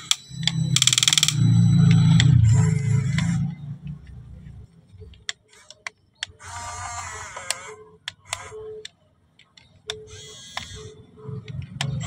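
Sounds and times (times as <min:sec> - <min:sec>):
sharp clicks: 0:00.0 - 0:02.3
toy excavator motors whirring: 0:00.0 - 0:04.2, 0:05.0 - 0:12.0.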